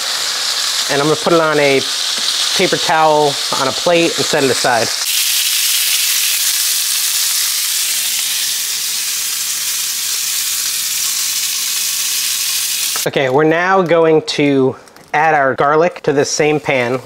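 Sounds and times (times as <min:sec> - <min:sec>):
chicken sizzling in a skillet: 0:00.0 - 0:13.1.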